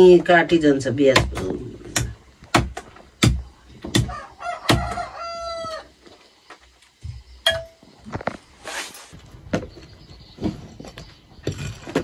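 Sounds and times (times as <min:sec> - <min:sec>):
knife chopping meat on wood: 0:01.2 - 0:04.1, 0:04.7 - 0:05.0
rooster crowing: 0:04.0 - 0:06.0.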